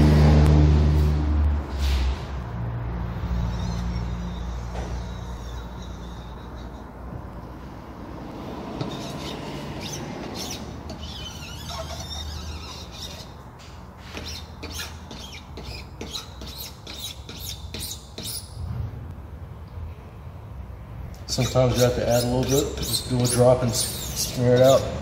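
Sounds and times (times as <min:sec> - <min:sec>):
spatula scraping squeakily: 0:03.1 - 0:07.7, 0:08.7 - 0:18.6, 0:21.3 - 0:25.0.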